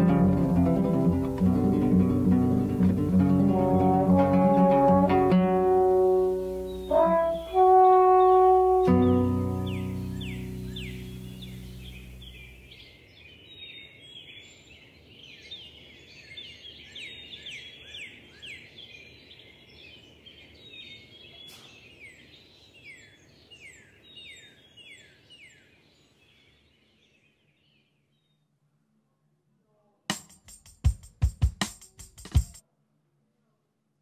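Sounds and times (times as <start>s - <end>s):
high falling bird-like chirps: 5.7s - 12.8s.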